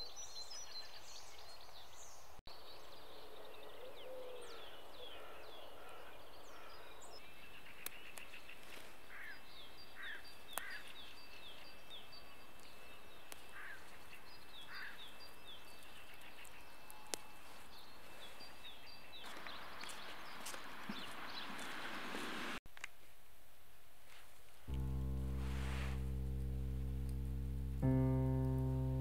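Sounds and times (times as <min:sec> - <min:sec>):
birds chirping: 0:00.0 - 0:22.6
steady outdoor hiss: 0:19.2 - 0:29.0.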